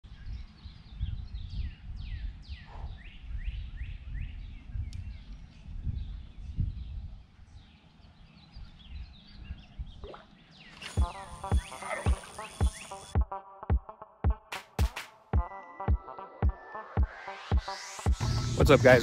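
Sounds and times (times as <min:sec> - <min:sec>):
wind rumble on microphone: 0:00.0 - 0:10.2
birds chirping: 0:00.0 - 0:13.2.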